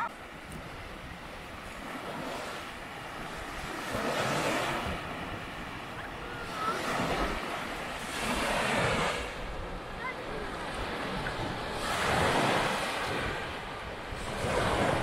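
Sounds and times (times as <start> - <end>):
small waves washing onto sand: 0.0 - 15.0.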